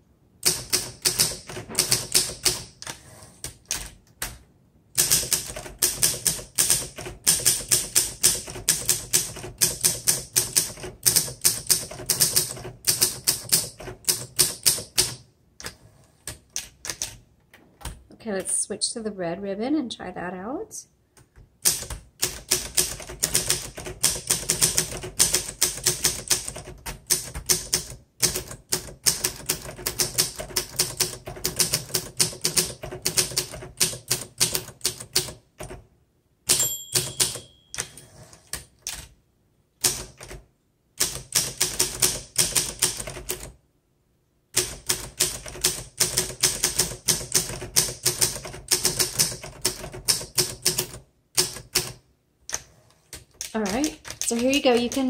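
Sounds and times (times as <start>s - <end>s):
typewriter margin bell ringing: 36.5s - 38.0s.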